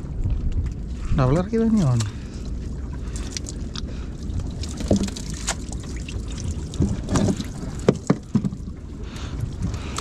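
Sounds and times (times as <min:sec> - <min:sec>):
wind on microphone: 0:00.0 - 0:01.7
low rumble: 0:00.0 - 0:10.0
net and fish knocking and slapping: 0:03.1 - 0:08.7.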